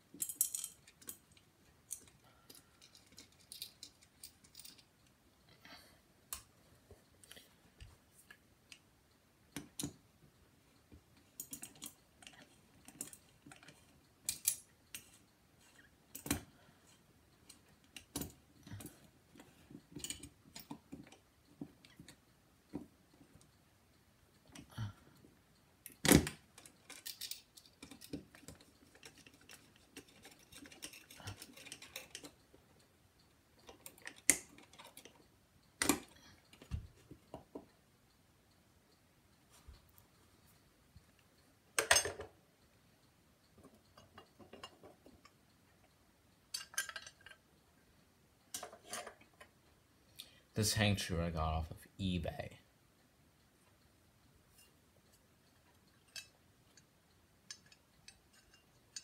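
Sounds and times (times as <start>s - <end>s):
small hardware clicking and clinking: 0.0s - 6.5s, 7.2s - 50.4s, 54.5s - 59.0s.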